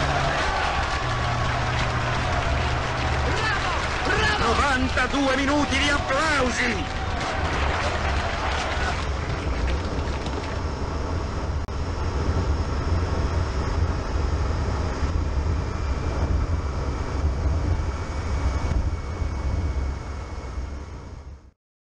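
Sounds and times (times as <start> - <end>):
car driving rumble: 0.0 - 11.2
faint steady whine: 0.0 - 21.5.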